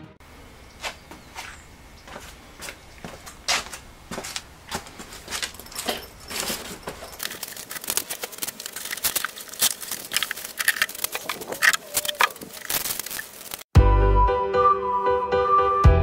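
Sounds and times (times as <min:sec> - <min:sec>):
fabric bag rustling and crinkling: 0:04.4 - 0:13.7.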